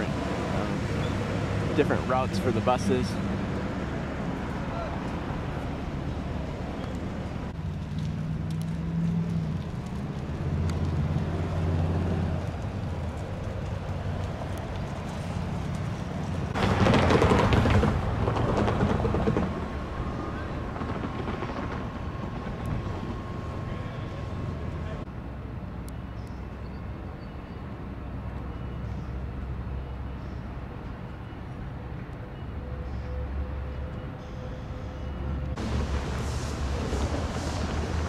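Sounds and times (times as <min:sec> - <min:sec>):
construction machinery engine humming: 0:00.0 - 0:38.0.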